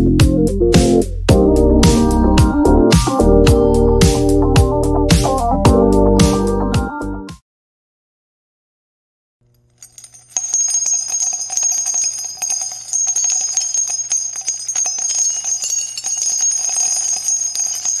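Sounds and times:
jingling bells: 0:01.4 - 0:04.0, 0:09.5 - 0:18.0.

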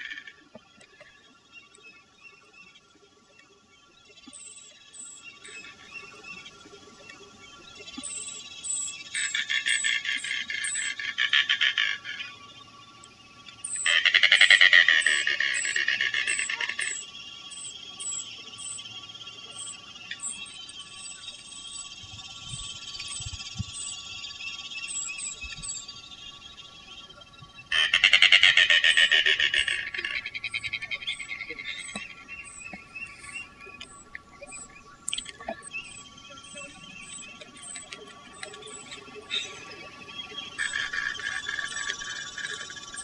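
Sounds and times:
faint high chirp: 0:00.0 - 0:11.0, 0:12.3 - 0:27.7, 0:29.0 - 0:43.0
bird clicking rattling call: 0:13.5 - 0:18.8, 0:27.7 - 0:34.2, 0:35.0 - 0:39.4, 0:40.6 - 0:43.0.

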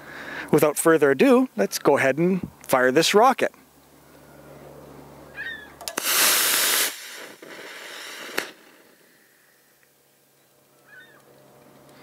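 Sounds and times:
rocket engine hissing: 0:05.7 - 0:09.8
ejection charge pop: 0:05.8 - 0:08.8.

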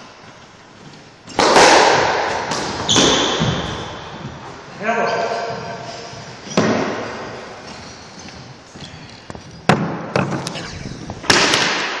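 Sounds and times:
knock echoing in squash court: 0:01.3 - 0:04.7, 0:05.4 - 0:07.5, 0:09.7 - 0:12.0.

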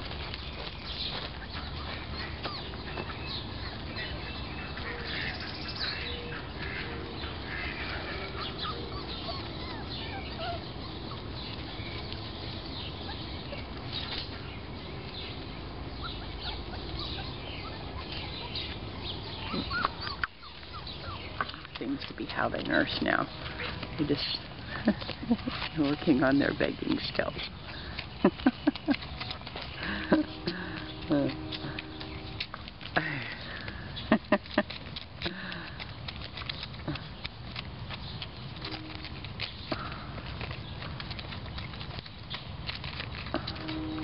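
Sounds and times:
steady rustling noise: 0:00.0 - 0:44.0
high chirps and squeaks: 0:07.5 - 0:26.5.

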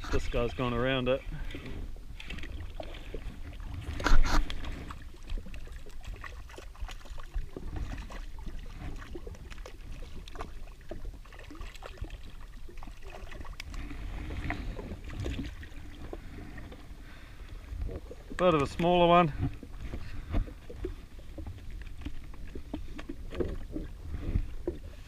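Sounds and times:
waves lapping against hull: 0:00.0 - 0:25.0
fish splashing: 0:01.4 - 0:25.0
wind rumble on microphone: 0:13.4 - 0:25.0.

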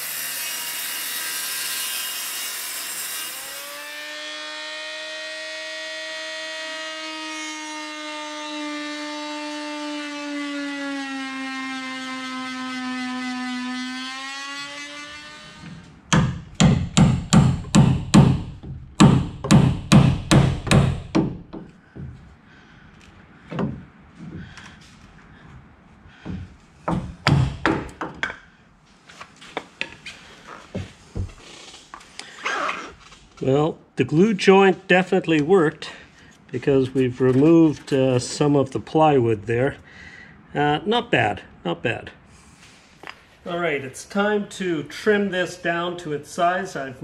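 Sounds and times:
oscillating multi-tool whining: 0:00.0 - 0:15.8
hammer striking chisel: 0:16.1 - 0:22.1, 0:26.2 - 0:28.4.

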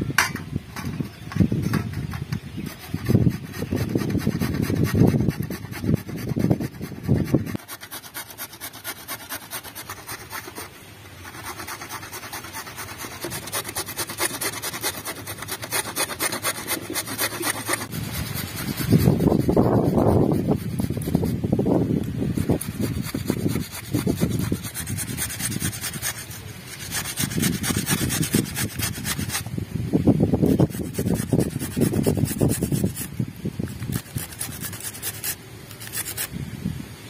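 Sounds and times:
carrot grated on metal grater: 0:11.2 - 0:21.3, 0:30.4 - 0:33.1.

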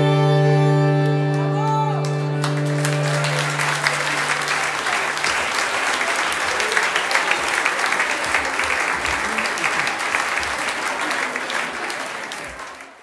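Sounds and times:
audience applauding: 0:02.0 - 0:13.0
voices in the crowd: 0:03.5 - 0:13.0.

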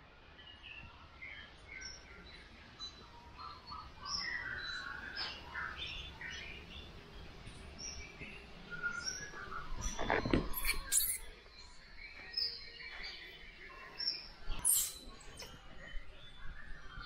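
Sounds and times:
baby monkey squeaks and chirps: 0:10.0 - 0:11.3, 0:14.6 - 0:15.2.

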